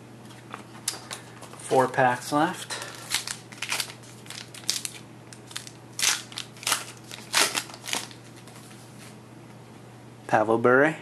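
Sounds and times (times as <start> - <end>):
wrapper tearing and crinkling: 2.9 - 8.6.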